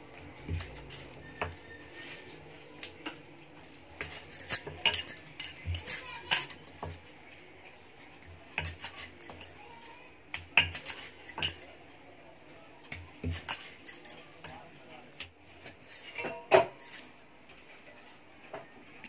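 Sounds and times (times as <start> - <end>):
bangles clinking: 0.1 - 2.4, 3.1 - 12.2, 13.2 - 14.7, 15.8 - 16.2, 16.8 - 17.1.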